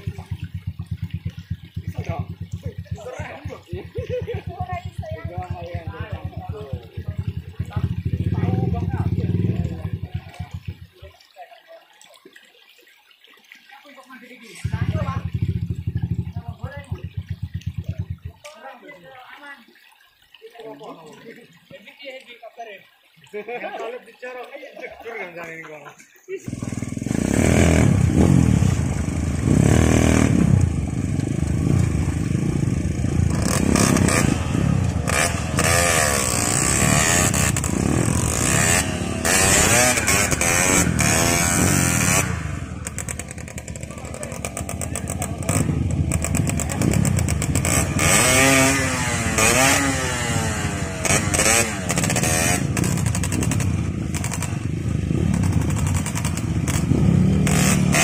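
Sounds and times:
dirt bike engines revving: 0.0s - 11.0s, 26.4s - 58.0s
water splashing around wheels: 0.0s - 58.0s.

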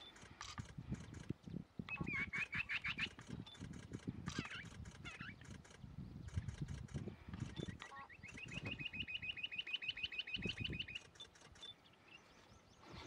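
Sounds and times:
quail piping calls: 1.9s - 3.7s, 7.4s - 13.0s.

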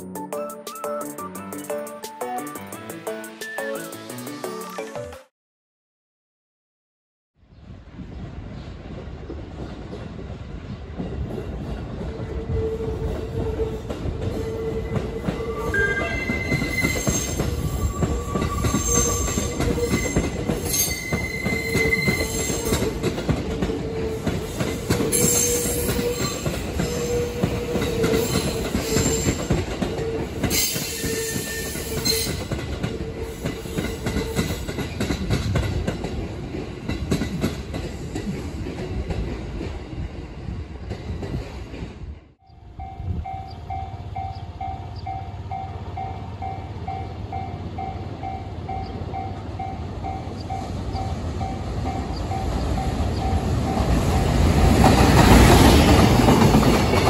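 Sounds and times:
train wheels rumbling: 7.8s - 57.0s
high-pitched wheel squeals: 14.3s - 22.8s
electric train hum: 32.0s - 57.0s.

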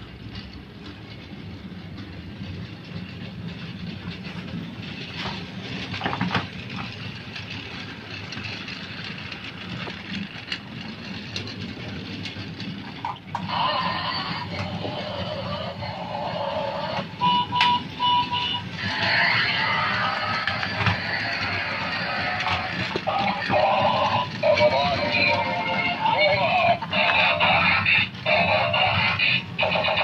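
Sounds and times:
wheels clicking over track joints: 0.0s - 30.0s
toy train motor humming: 4.9s - 30.0s
tinny electronic toy music: 13.4s - 30.0s.

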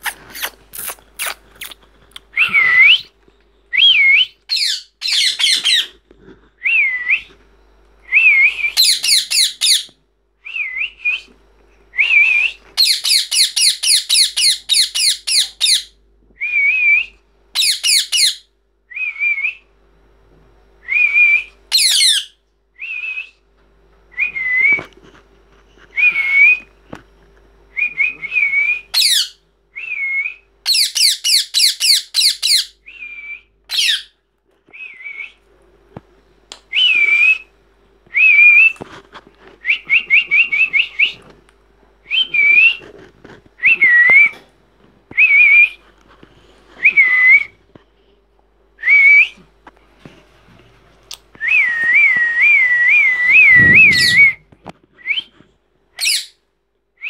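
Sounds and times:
parakeets calling: 4.0s - 5.9s, 8.8s - 9.9s, 12.8s - 15.9s, 17.6s - 18.4s, 21.7s - 22.3s, 29.0s - 29.4s, 30.7s - 32.7s.

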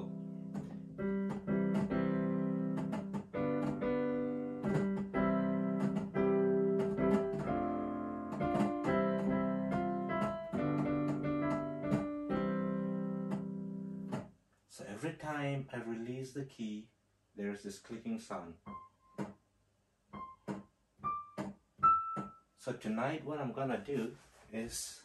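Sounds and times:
digital piano notes: 0.0s - 14.3s, 18.6s - 19.3s, 20.1s - 22.6s
piano keys clicking: 0.0s - 14.3s, 20.2s - 22.4s.

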